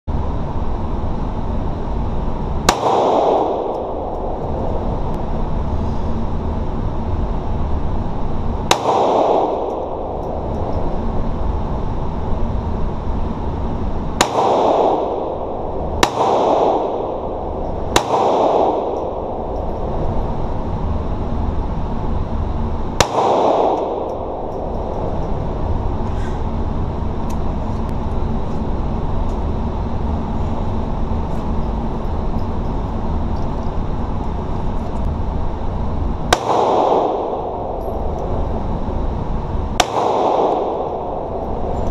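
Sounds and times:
steady low rumble: 0:00.0 - 0:41.9
pistol shots echoing indoors: 0:02.6 - 0:05.3, 0:08.0 - 0:25.8, 0:36.2 - 0:41.9.

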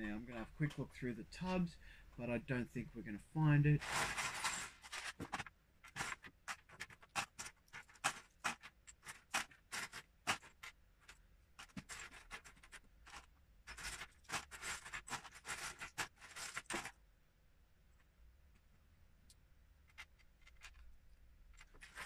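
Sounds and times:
plastic bricks clicking and clattering: 0:03.8 - 0:17.0, 0:19.9 - 0:22.0.

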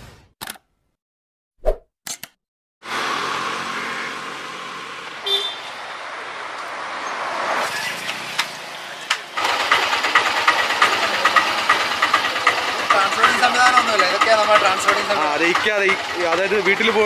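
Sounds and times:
road traffic passing: 0:02.8 - 0:17.0
motor scooter engine running: 0:02.9 - 0:05.6, 0:09.4 - 0:17.0.

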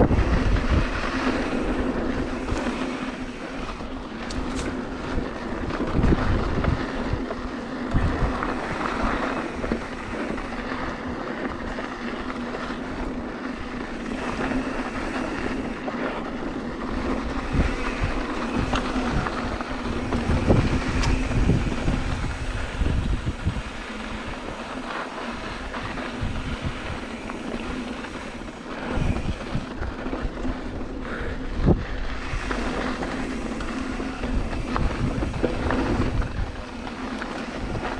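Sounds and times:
bike tyres humming on dirt: 0:00.0 - 0:37.9
wind buffeting microphone: 0:00.0 - 0:37.9
bike knocks and rattles: 0:31.8 - 0:37.9.

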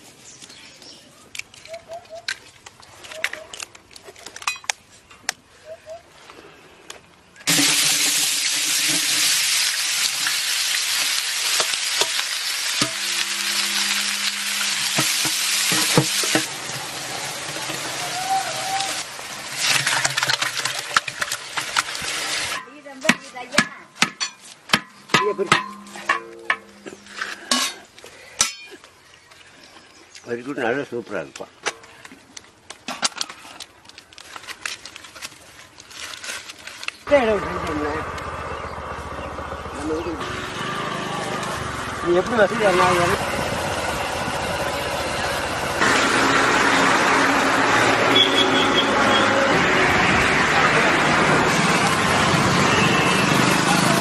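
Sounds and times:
bird chirps: 0:00.4 - 0:02.3.

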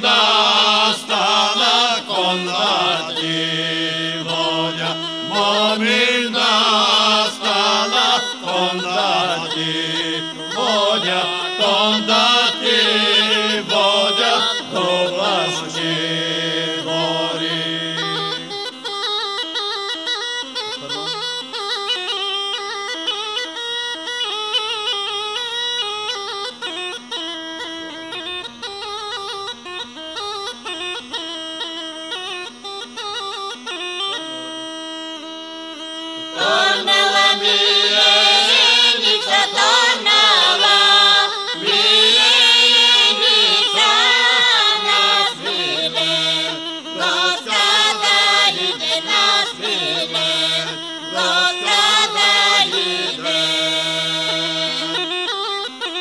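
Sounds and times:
group folk singing: 0:00.0 - 0:18.7, 0:36.3 - 0:55.3.

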